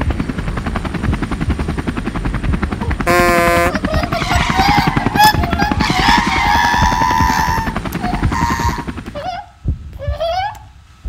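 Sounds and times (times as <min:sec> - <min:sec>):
chopping rotor-like pulse: 0:00.0 - 0:10.2
horn-like blare: 0:03.0 - 0:03.9.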